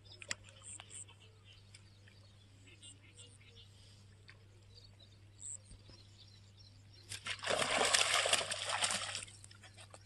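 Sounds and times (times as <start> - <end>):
fish thrashing and splashing: 7.1 - 9.5.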